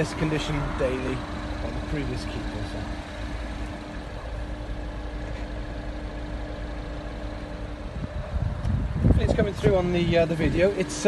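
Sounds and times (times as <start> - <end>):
steady low hum: 0.0 - 11.0
wind buffeting microphone: 7.6 - 10.8.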